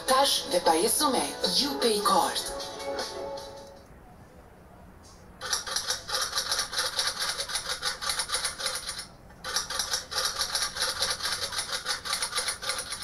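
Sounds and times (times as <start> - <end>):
rapid clatter of clicks: 5.4 - 13.0.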